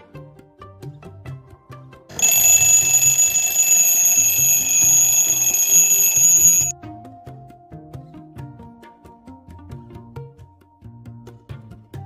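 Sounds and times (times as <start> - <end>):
alarm clock bells ringing: 2.2 - 6.7.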